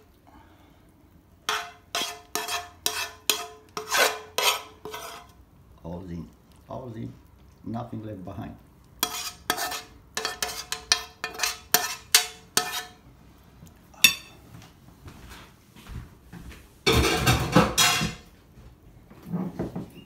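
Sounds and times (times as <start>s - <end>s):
loud rustling scrape: 1.5s - 5.4s
metal spoon scraping a pan: 1.5s - 5.4s, 9.0s - 13.0s, 14.0s - 14.4s, 16.9s - 18.2s.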